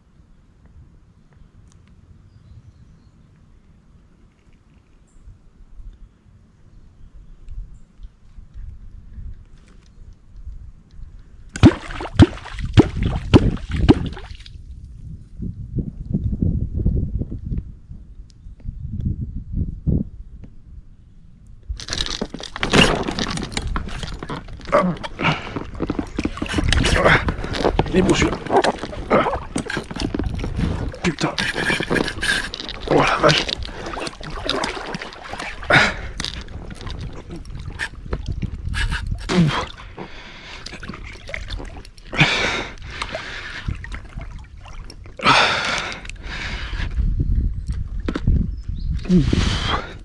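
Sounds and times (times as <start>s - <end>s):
water splashing: 11.6s - 14.5s, 21.9s - 45.6s
fishing rod and gear handling: 21.8s - 39.8s
person breathing heavily: 24.8s - 25.8s, 35.6s - 36.3s, 38.7s - 40.8s, 42.1s - 43.8s, 45.2s - 47.0s, 49.0s - 50.0s.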